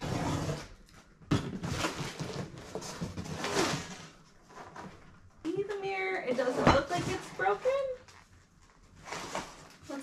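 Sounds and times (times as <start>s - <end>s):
cardboard scraping and rustling: 1.6s - 5.0s.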